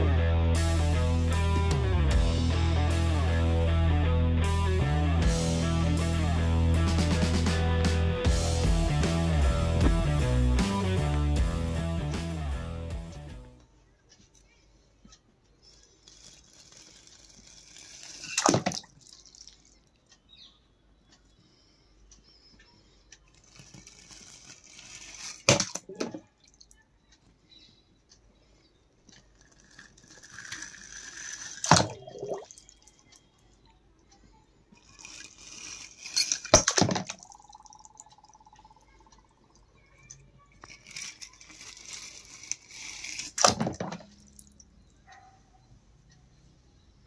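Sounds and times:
sharp knock and splash: 18.3 - 18.9, 31.6 - 32.4, 36.5 - 37.2.

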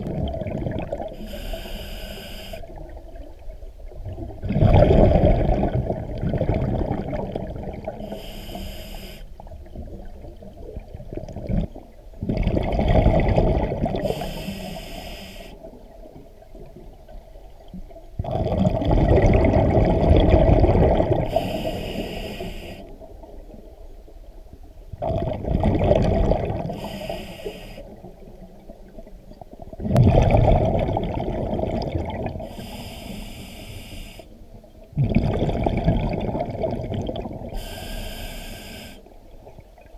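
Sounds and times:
exhaled bubbles underwater: 0.0 - 8.6, 9.4 - 14.8, 15.4 - 23.8, 24.9 - 39.9
regulator hiss on inhale: 1.2 - 2.7, 8.0 - 9.4, 14.0 - 15.7, 21.2 - 23.0, 26.7 - 28.0, 32.4 - 34.4, 37.6 - 39.2.

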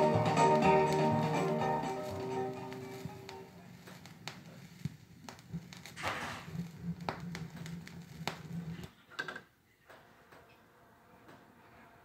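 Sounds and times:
vinyl record clicks and pops: 0.0 - 9.4.

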